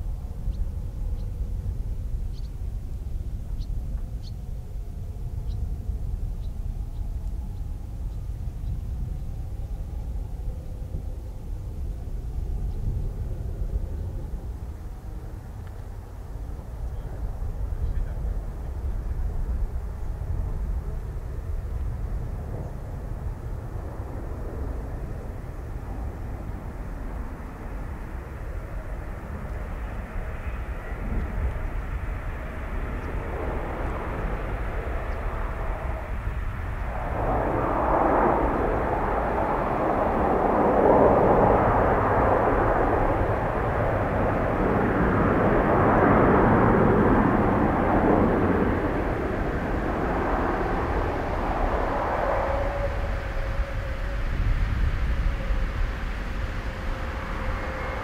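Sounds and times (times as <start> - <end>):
turboprop aircraft engines: 0.0 - 58.0.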